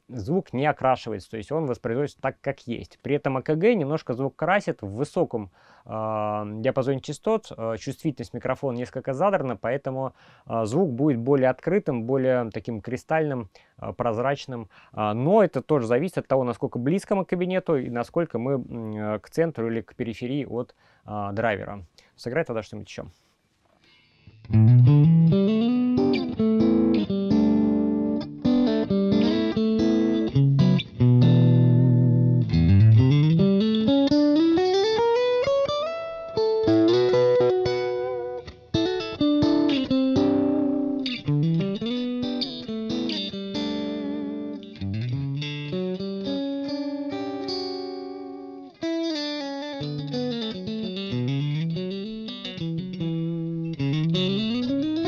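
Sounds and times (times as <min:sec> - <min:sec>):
electric guitar with sliding notes: 0:24.3 - 0:55.0.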